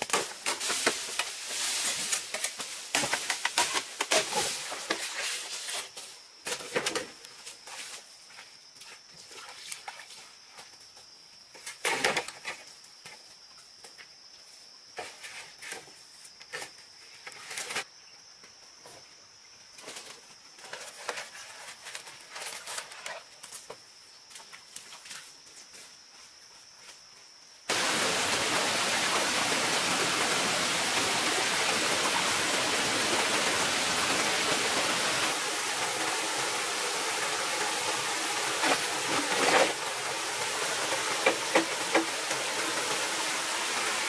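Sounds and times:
bamboo leaves rustling: 0:00.0 - 0:09.9, 0:19.8 - 0:44.0
bamboo poles knocking together: 0:40.8 - 0:42.4.

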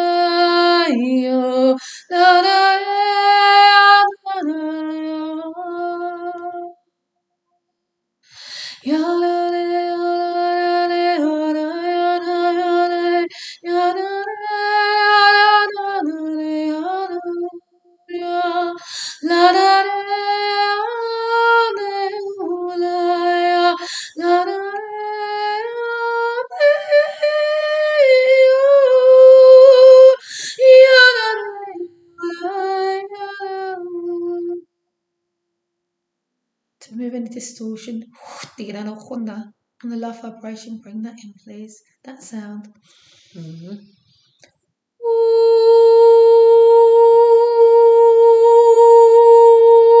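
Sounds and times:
woman singing wordless notes: 0:00.0 - 0:06.8, 0:08.8 - 0:34.6, 0:45.0 - 0:50.0
breaths: 0:01.8 - 0:02.1, 0:08.2 - 0:08.9, 0:13.3 - 0:13.6, 0:18.8 - 0:19.2, 0:23.8 - 0:24.2, 0:30.2 - 0:30.6, 0:42.8 - 0:44.5.

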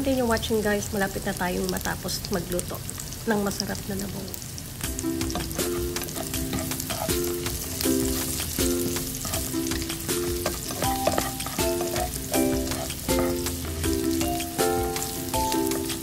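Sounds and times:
food sizzling in a frying pan: 0:00.0 - 0:16.0
oil spattering crackles: 0:02.6 - 0:16.0
background music: 0:04.8 - 0:16.0.

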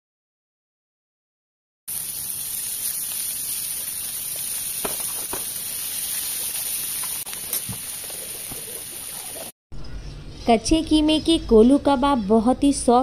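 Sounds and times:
food frying with hissing sizzle: 0:01.9 - 0:09.5.

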